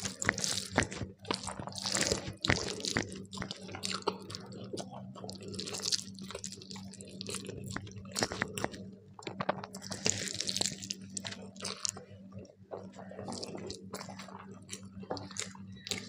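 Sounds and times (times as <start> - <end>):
faint low hum: 0.0 - 16.0
person chewing with wet smacks: 0.0 - 16.0
crunching: 5.3 - 12.1.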